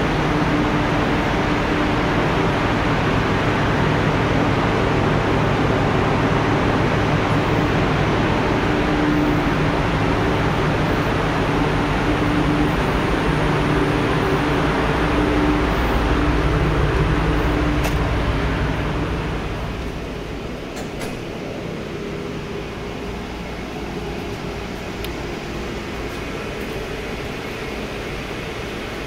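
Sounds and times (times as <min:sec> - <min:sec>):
ship engine room machinery hum: 0:00.0 - 0:29.0.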